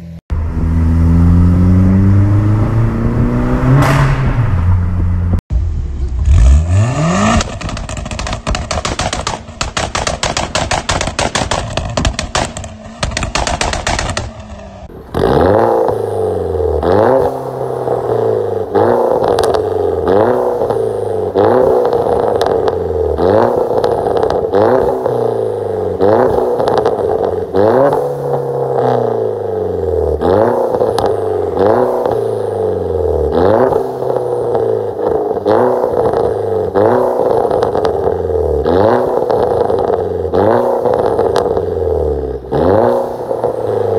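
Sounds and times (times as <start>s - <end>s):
car engine revving: 0.0s - 43.9s
exhaust crackling pops and bangs: 7.2s - 15.3s, 19.2s - 19.7s, 21.4s - 25.0s, 26.2s - 27.2s, 30.8s - 32.2s, 40.6s - 41.6s
car throttle blips: 7.2s - 16.1s.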